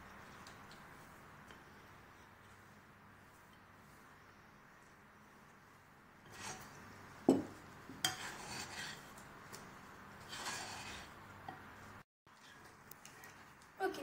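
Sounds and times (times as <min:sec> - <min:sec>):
spoon scraping glass bowl: 0:06.3 - 0:06.8, 0:08.0 - 0:09.2, 0:10.2 - 0:11.2.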